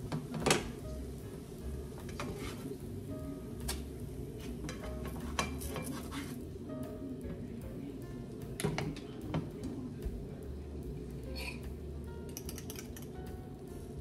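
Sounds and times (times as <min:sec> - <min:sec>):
faint sizzle: 0:00.0 - 0:14.0
soft background music: 0:00.0 - 0:14.0
spatula scraping frying pan: 0:02.1 - 0:02.8, 0:04.4 - 0:06.4
utensil tapping on pan: 0:03.6 - 0:06.3.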